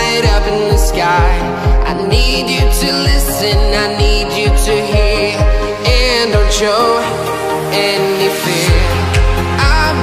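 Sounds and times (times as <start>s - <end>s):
deep repeating bass beat: 0.0s - 7.8s, 8.5s - 10.0s
electronic pop music: 0.0s - 10.0s.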